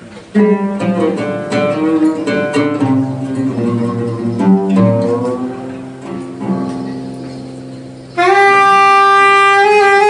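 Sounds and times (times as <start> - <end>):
jazz band playing: 0.3 - 10.0
saxophone long held note: 8.2 - 10.0.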